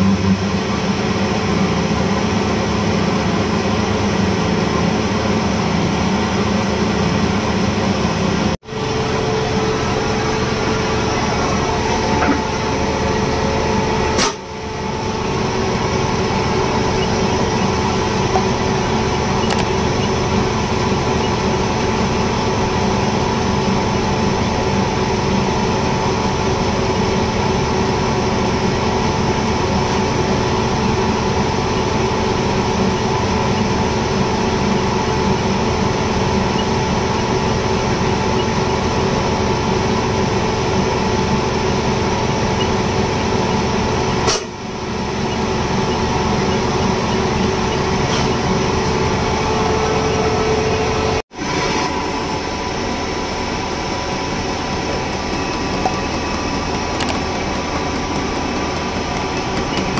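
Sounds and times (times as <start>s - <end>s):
test bench machine hum: 0.0s - 59.9s
machine click: 19.4s - 19.7s, 55.1s - 59.9s
injectors spraying fuel: 54.0s - 59.9s.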